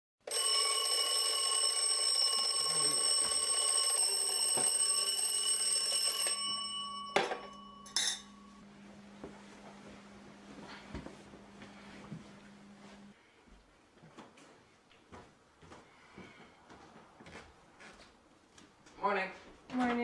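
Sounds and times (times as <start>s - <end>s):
alarm clock ringing: 0.2s - 8.6s.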